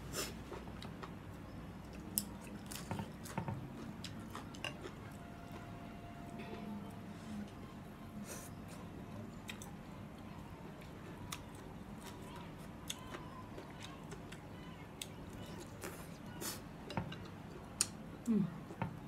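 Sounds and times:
chewing: 1.8 - 5.7.

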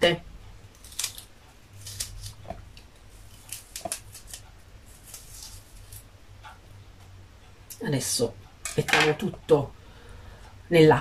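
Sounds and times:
low steady hum: 0.0 - 11.0
knife slicing crisp fennel: 0.8 - 6.0.

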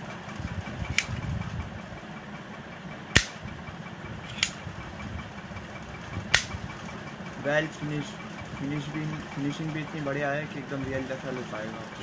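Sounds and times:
steady low hum: 0.0 - 12.0
sharp pistol clicks: 3.2 - 3.4, 6.3 - 6.5.

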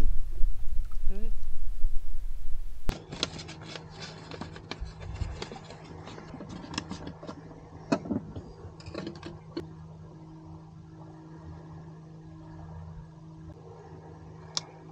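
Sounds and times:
steady low hum: 0.0 - 14.9
paper filter crinkling: 2.9 - 7.3.

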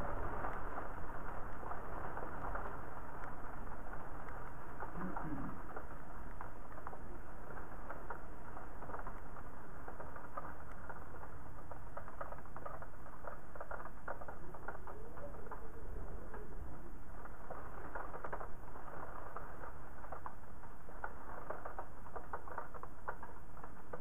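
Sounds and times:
hiss of falling rain: 0.0 - 24.0
raindrops ticking on window: 0.0 - 24.0.

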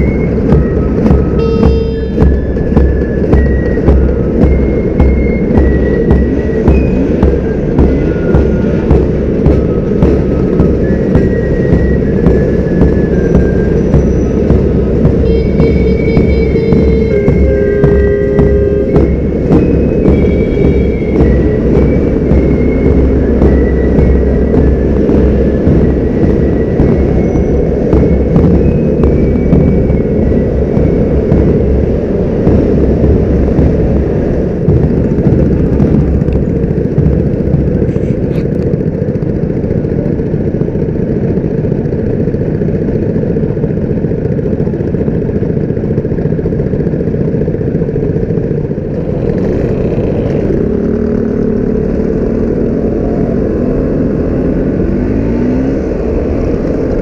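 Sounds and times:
scooter engines droning: 0.0 - 57.0
scooter engine revving: 6.3 - 57.0.

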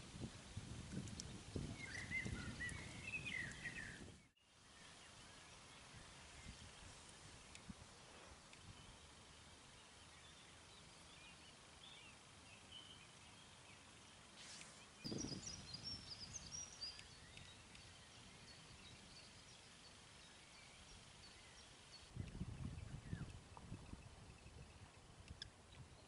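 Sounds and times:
faint high bird chirps: 1.6 - 4.1, 9.8 - 26.0.

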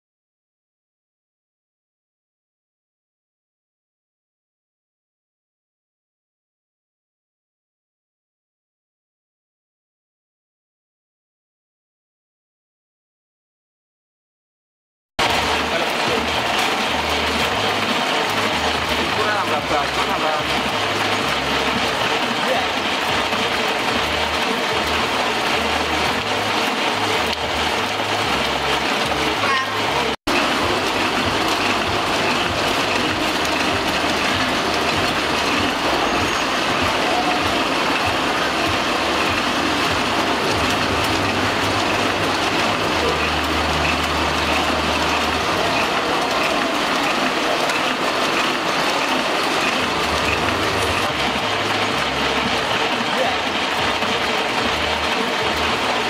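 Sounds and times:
low machine hum: 15.2 - 56.0
printing press clattering: 15.2 - 56.0.

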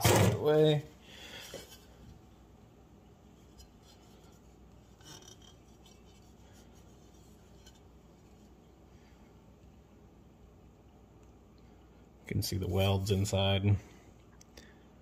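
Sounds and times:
metal pipe handling noise: 3.4 - 8.5.

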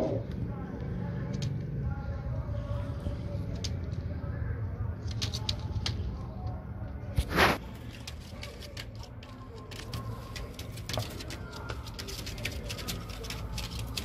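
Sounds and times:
pigeons clicking and scraping: 7.5 - 14.0.

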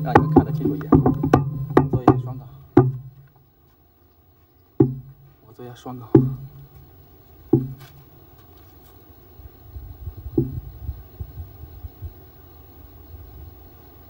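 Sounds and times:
low uneven rumbling: 0.0 - 3.4, 10.0 - 11.4.

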